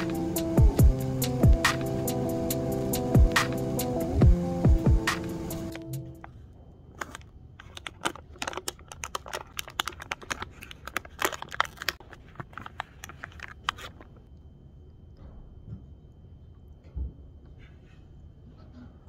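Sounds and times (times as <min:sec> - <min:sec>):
plastic wrapper crinkling: 0:06.2 - 0:14.3.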